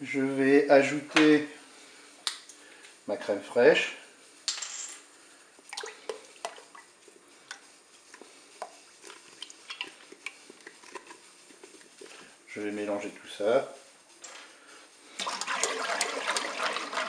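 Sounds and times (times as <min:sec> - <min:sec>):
liquid trickling and dripping: 0:05.6 - 0:11.2.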